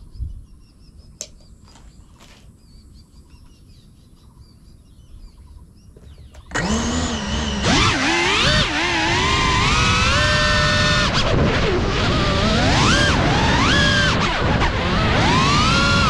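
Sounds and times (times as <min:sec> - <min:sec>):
birds chirping faintly: 0:00.0 - 0:06.8
drone motors whining: 0:06.0 - 0:16.0.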